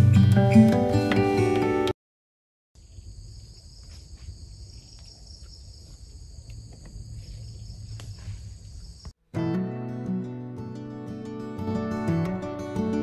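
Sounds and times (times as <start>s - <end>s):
acoustic guitar music: 0.0s - 1.9s, 9.3s - 13.0s.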